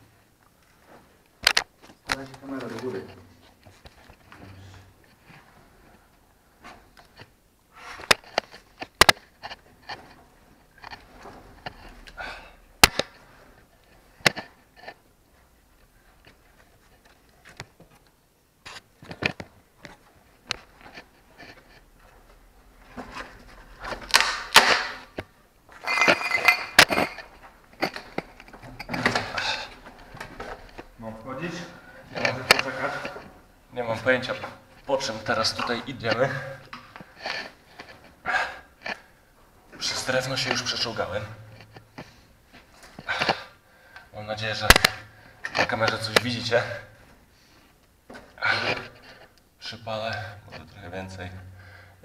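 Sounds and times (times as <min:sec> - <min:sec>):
scraping and rustling of clothes: 0:00.0 - 0:51.3.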